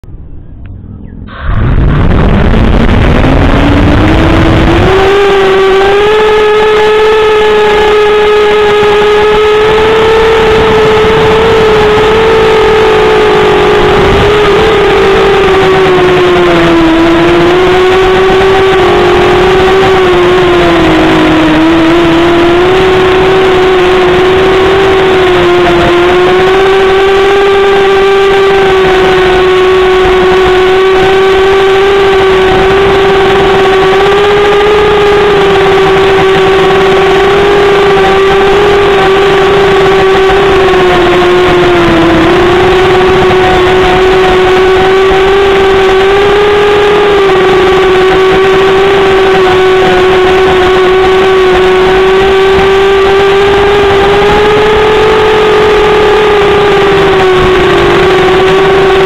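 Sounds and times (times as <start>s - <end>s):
drone propellers whining: 0.0s - 59.0s.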